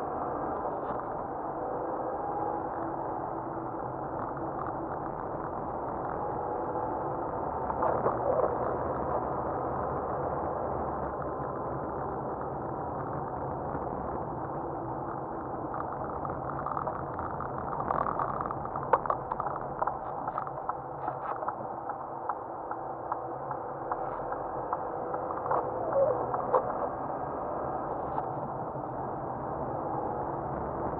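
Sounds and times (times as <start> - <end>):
engine and tyre noise: 14.5 - 30.6.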